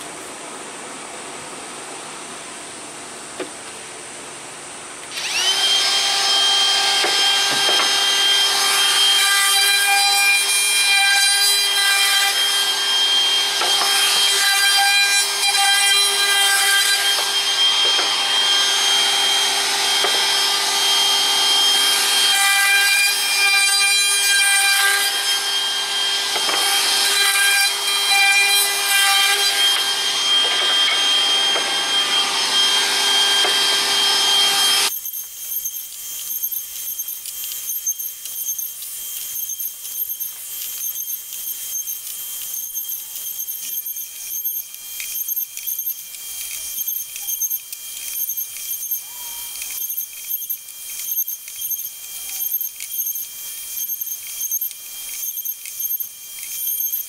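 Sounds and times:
router high whine: 5.0s - 57.0s
router cutting wood: 5.1s - 57.0s.

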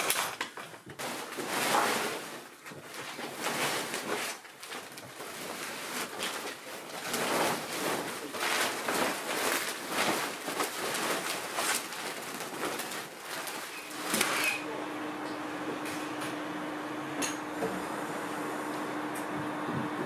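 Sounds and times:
plastic bag rustling and crinkling: 0.0s - 14.6s.

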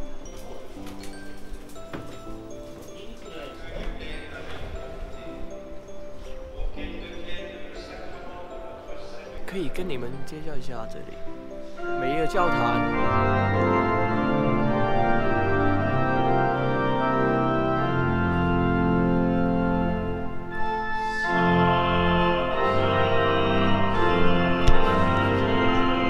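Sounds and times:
pipe organ chords: 10.0s - 26.0s.

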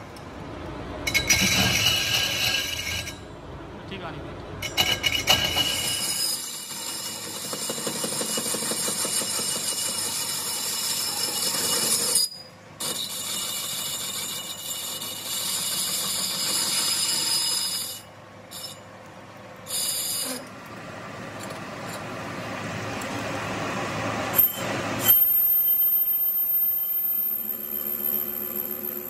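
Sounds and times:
high whine: 23.0s - 29.0s.

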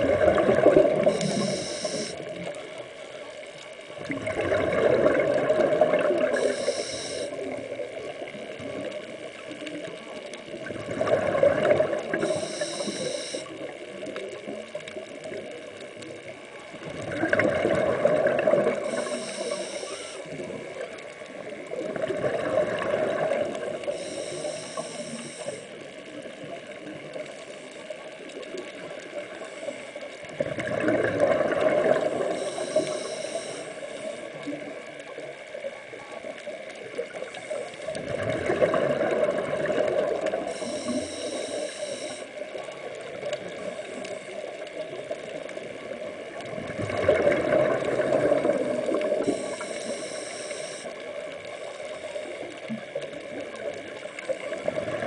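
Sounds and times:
exhaled bubbles rushing: 0.0s - 2.0s, 4.0s - 6.5s, 10.6s - 12.8s, 16.8s - 19.1s, 21.7s - 23.9s, 30.4s - 32.4s, 38.0s - 40.5s, 46.4s - 49.6s
regulator inhale hiss: 1.0s - 2.4s, 6.2s - 7.6s, 12.1s - 13.6s, 18.8s - 20.4s, 23.8s - 25.8s, 29.3s - 30.2s, 32.1s - 34.7s, 37.1s - 38.0s, 40.3s - 42.4s, 49.2s - 52.5s.

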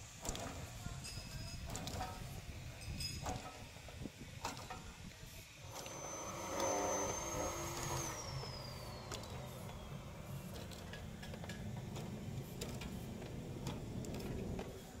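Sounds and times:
high falling whine: 5.6s - 13.6s.

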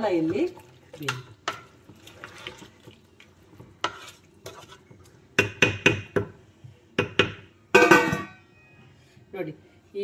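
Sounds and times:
wooden spatula knocking metal pot: 5.4s - 6.4s, 7.0s - 8.4s.

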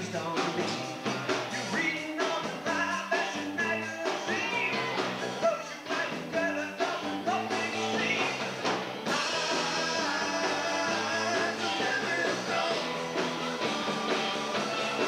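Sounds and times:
person singing: 0.0s - 8.4s, 9.1s - 13.0s
rock band playing live: 0.0s - 15.0s.

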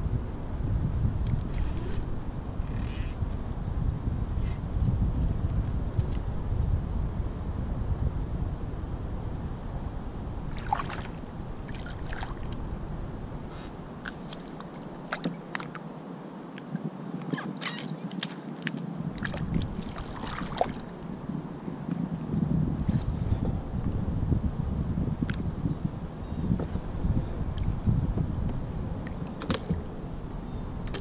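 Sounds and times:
wind rumbling on microphone: 0.0s - 31.0s
paddle splashing in water: 10.5s - 12.6s, 14.0s - 15.8s, 17.6s - 20.9s.

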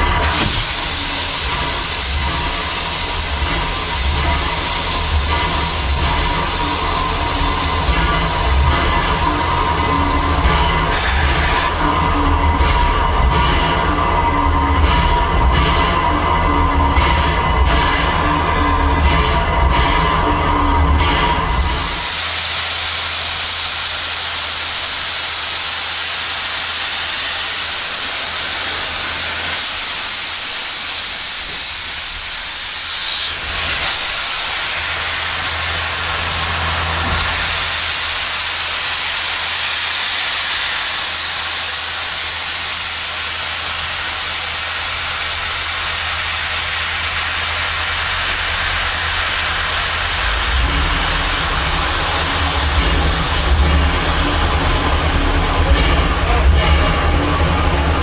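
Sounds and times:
steam hissing from locomotive: 0.0s - 58.0s
low rumble: 47.2s - 58.0s.

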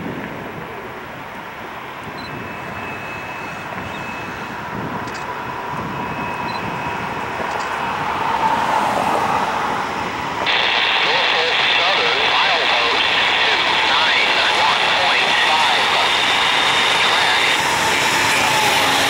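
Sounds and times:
diesel train approaching: 0.0s - 19.0s
faint steady whine: 9.4s - 19.0s.

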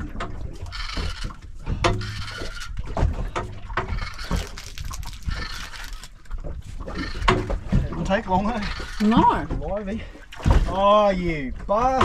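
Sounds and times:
fishing reel winding: 4.0s - 6.1s.

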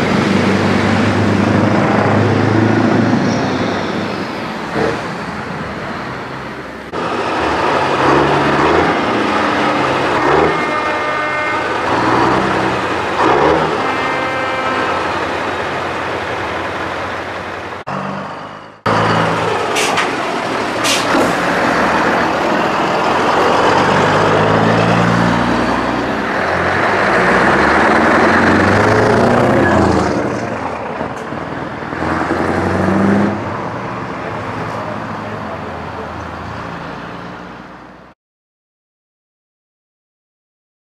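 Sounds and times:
diesel trucks driving past: 0.0s - 38.2s
air brake hisses: 20.8s - 21.4s.

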